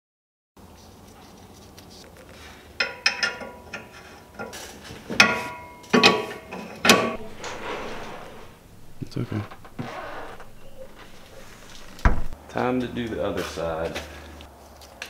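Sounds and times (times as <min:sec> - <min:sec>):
metal tools clinking and knocking: 0:02.8 - 0:04.6, 0:05.2 - 0:12.3.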